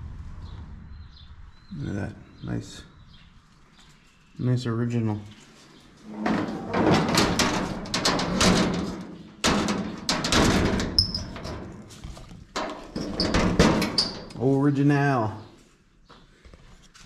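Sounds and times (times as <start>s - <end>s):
sheet metal panel rattling: 6.0s - 14.4s
metal panel bangs: 6.1s - 11.8s, 12.6s - 14.3s.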